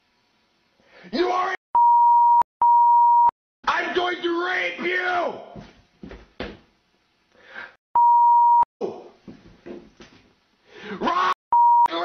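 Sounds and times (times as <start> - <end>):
man shouting: 1.1 - 1.6, 3.7 - 5.6, 11.0 - 12.0
censor beep tone: 1.8 - 3.3, 8.0 - 8.7, 11.5 - 11.9.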